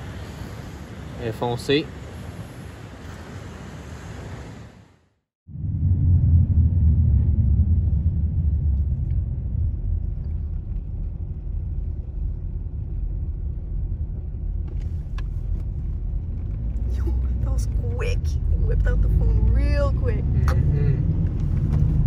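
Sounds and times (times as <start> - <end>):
car road rumble inside cabin: 5.5 - 22.0.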